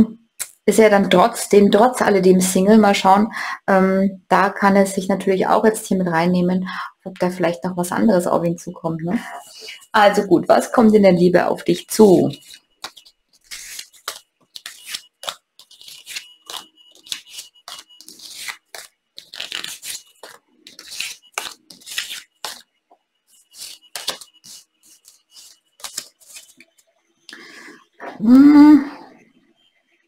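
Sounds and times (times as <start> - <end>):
cards sliding and tapping on table: 12.4 - 22.6.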